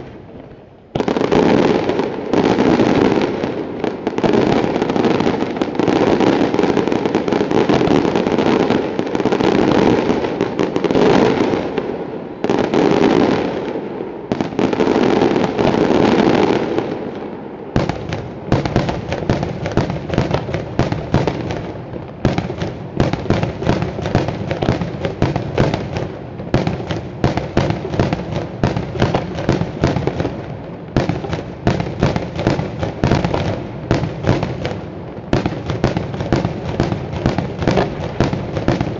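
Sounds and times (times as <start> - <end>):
fireworks bangs and crackle: 0.0 - 38.9.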